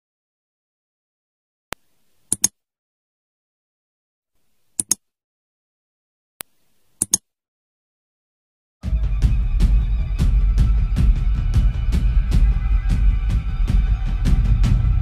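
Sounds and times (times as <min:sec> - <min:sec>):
mouse clicks: 0:01.7 - 0:02.6, 0:04.5 - 0:05.0, 0:06.4 - 0:07.3
music: 0:08.8 - 0:15.0.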